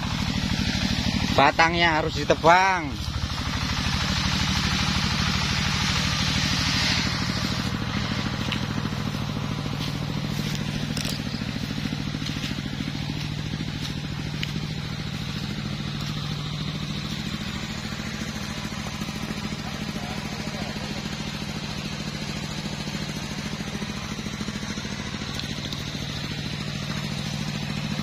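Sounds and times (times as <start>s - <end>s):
chainsaw idling: 0.0s - 28.0s
hiss: 3.0s - 9.4s.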